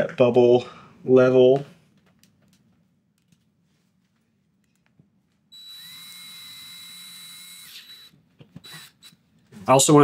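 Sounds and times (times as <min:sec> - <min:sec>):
cordless drill driving screw: 0:05.5 - 0:09.2.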